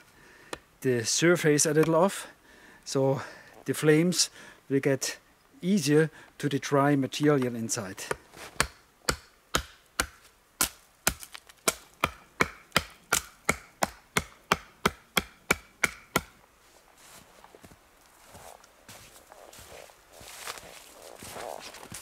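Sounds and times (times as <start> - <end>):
knife chopping wood: 8.0 - 16.4.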